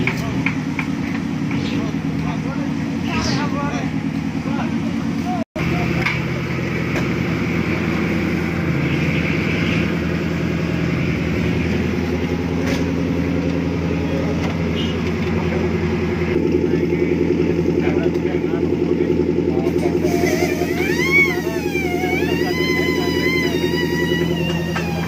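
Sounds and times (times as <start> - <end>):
engine running: 0.0 - 25.0
pulsing engine note: 16.4 - 25.0.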